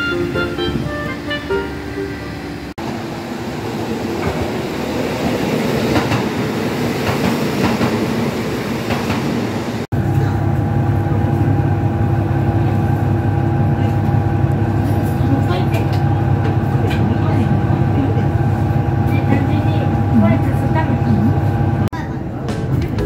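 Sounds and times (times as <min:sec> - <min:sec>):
diesel railcar engine idling: 0:10.0 - 0:22.0.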